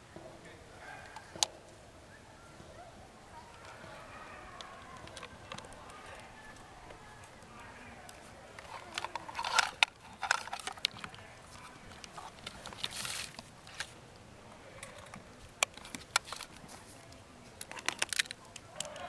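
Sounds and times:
plastic and connector clicks: 0:04.6 - 0:06.0, 0:17.6 - 0:19.0
cloth rustle: 0:11.3 - 0:14.0.

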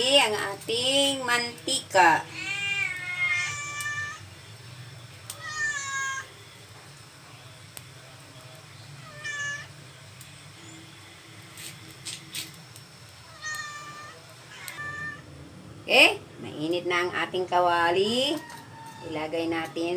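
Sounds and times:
low steady hum: 0:00.0 - 0:19.9
cat meowing: 0:02.3 - 0:04.2, 0:05.4 - 0:06.3, 0:09.0 - 0:09.7, 0:13.3 - 0:15.3.

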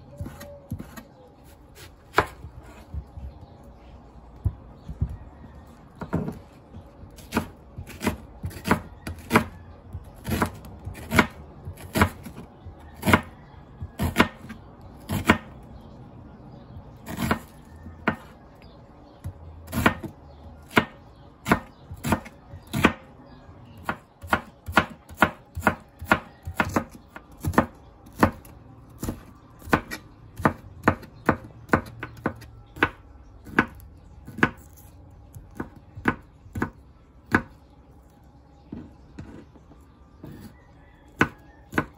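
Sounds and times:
knife chopping on cutting board: 0:00.2 - 0:01.0, 0:01.8 - 0:03.4, 0:07.1 - 0:09.6, 0:10.2 - 0:12.4, 0:13.9 - 0:15.5, 0:17.1 - 0:18.4, 0:19.7 - 0:20.1, 0:20.7 - 0:23.0, 0:23.8 - 0:34.8, 0:41.1 - 0:41.9.

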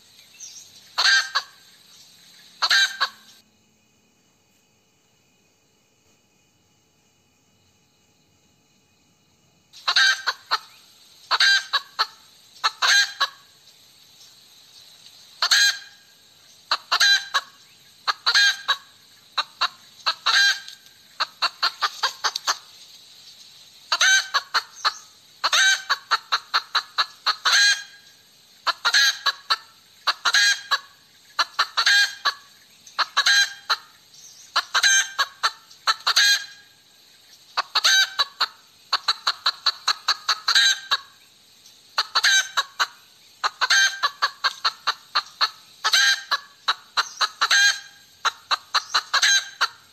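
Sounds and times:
hen cackling: 0:00.9 - 0:01.8, 0:02.6 - 0:03.4, 0:09.8 - 0:13.6, 0:15.4 - 0:22.7, 0:23.9 - 0:36.8, 0:37.6 - 0:41.2, 0:41.9 - 0:49.9.

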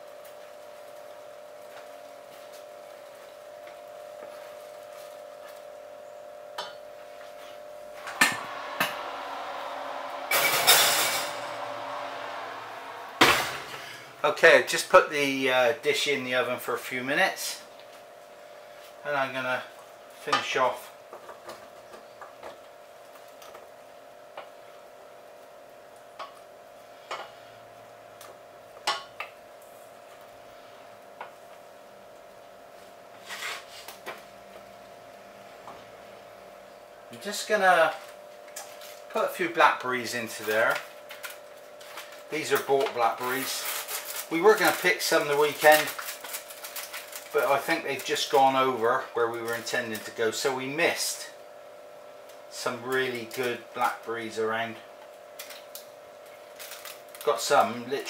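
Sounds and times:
steady hum: 0:06.6 - 0:17.0.

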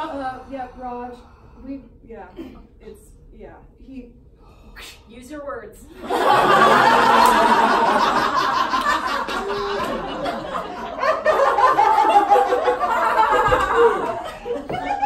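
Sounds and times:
audience laughing: 0:06.0 - 0:15.0.

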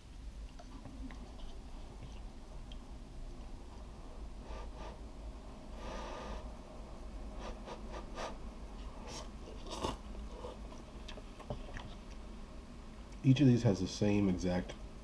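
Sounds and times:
chewing with wet mouth clicks: 0:10.7 - 0:12.2.

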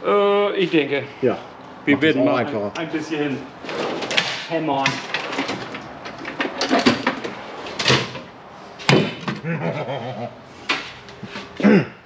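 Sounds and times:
metal tools clattering in drawer: 0:03.7 - 0:08.2.

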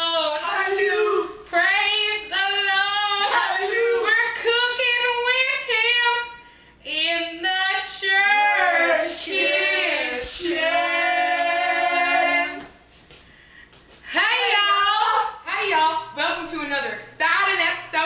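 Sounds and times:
person singing unaccompanied: 0:03.0 - 0:04.6, 0:08.3 - 0:12.8.

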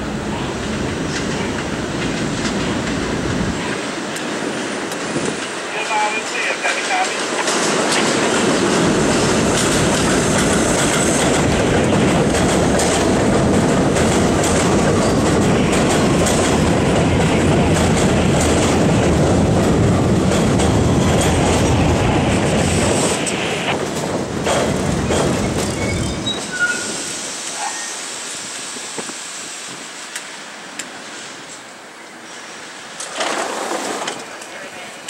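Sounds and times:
train wheels running over rails: 0:00.4 - 0:27.4, 0:32.4 - 0:34.6
high wheel squeals: 0:25.6 - 0:28.0.

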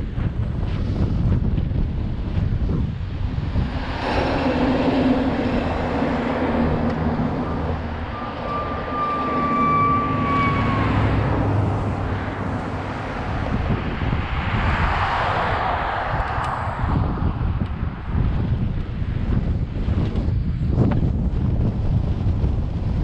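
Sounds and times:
low hum: 0:00.0 - 0:14.7
bicycle road noise: 0:00.0 - 0:23.0
wind buffeting microphone: 0:00.0 - 0:23.0
steady high squeal: 0:03.9 - 0:13.4.

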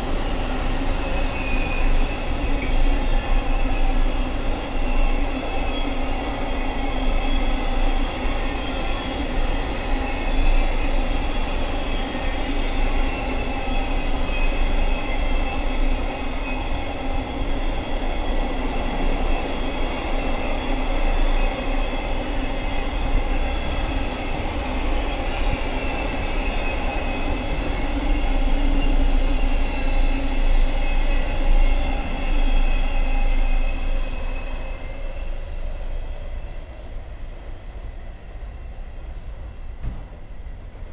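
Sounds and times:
freight train rumbling: 0:00.0 - 0:40.9
high wheel squeal: 0:25.0 - 0:35.9.

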